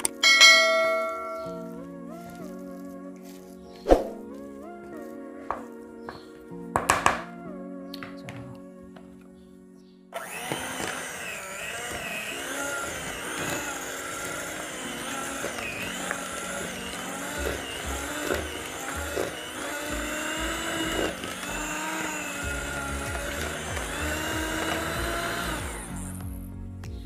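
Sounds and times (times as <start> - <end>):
electric hand mixer running: 0.0 - 1.7, 10.2 - 26.5.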